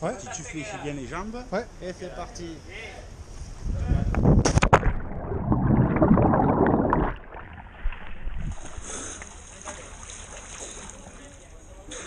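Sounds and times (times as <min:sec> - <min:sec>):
person splashing into water: 0:04.5 - 0:11.2
churning bubbling water: 0:04.7 - 0:11.2.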